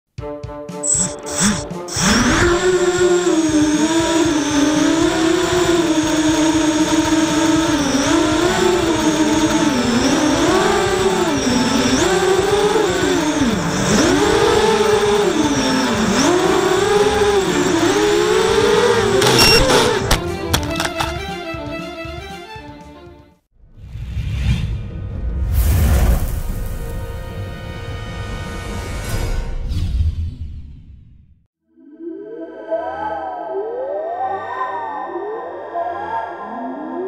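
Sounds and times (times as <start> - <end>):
drone motors whining: 0.8 - 22.3.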